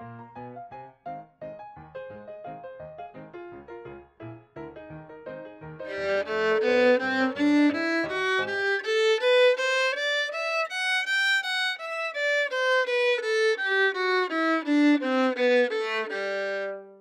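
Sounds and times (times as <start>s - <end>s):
deeper string accompaniment: 5.8s - 17.0s
violin melody: 5.8s - 17.0s.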